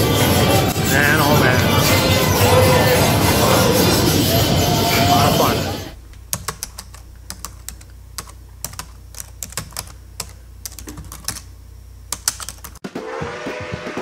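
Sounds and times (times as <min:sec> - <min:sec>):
low steady hum: 0:00.0 - 0:12.8
keyboard typing: 0:06.3 - 0:11.5, 0:12.1 - 0:12.8.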